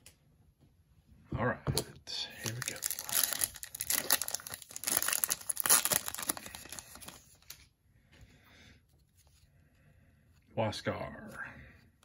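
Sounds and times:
foil wrapper tearing and crinkling: 2.5 - 7.6.

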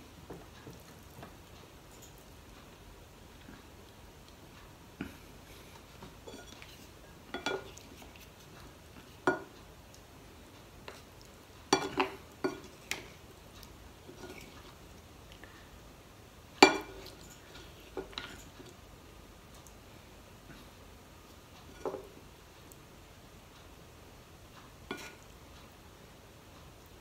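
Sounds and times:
ceramic spoon clinking on bowl: 16.6 - 17.2.

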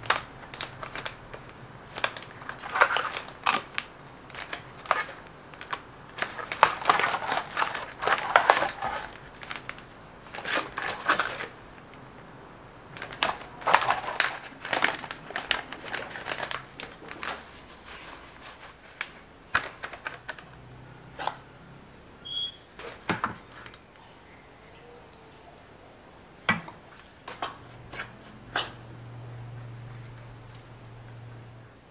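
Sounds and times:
crinkling and clicking: 0.0 - 21.5, 22.8 - 24.1, 26.5 - 28.9.

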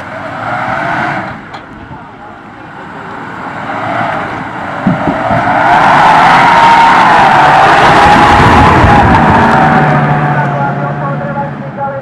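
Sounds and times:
vehicle engine revving: 2.4 - 12.0
thump: 4.8 - 5.5.

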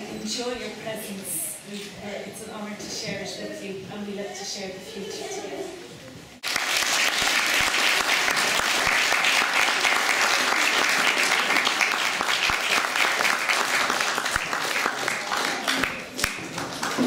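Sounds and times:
audience applauding: 6.4 - 17.0.

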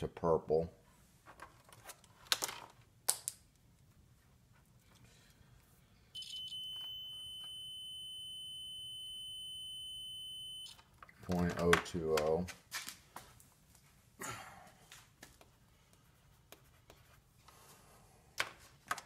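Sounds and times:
multimeter continuity beep: 6.2 - 10.8.

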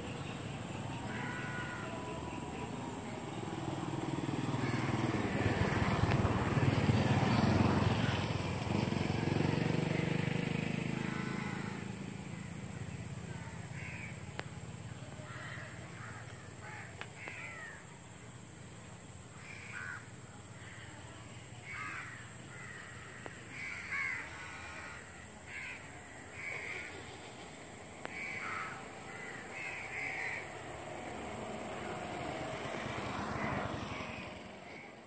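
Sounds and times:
crows cawing: 1.0 - 2.2, 4.4 - 5.8, 10.8 - 12.5, 13.4 - 14.2, 15.2 - 17.8, 19.4 - 20.1, 21.7 - 27.1, 28.0 - 30.7.

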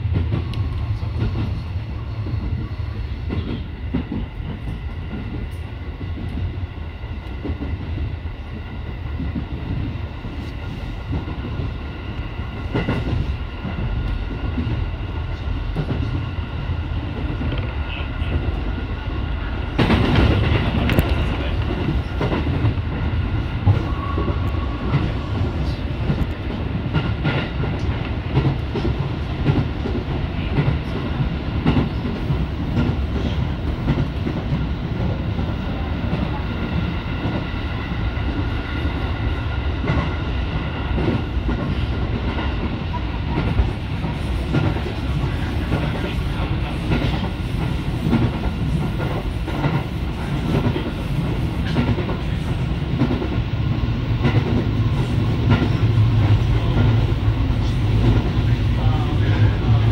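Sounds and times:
train wheels running on rails: 0.0 - 59.9
rail-joint clicks: 17.2 - 18.6, 19.8 - 22.8, 41.0 - 53.4, 54.2 - 59.9.

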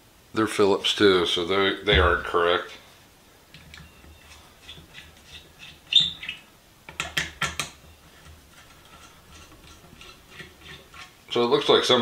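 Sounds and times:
screw squeak: 3.8 - 6.4.

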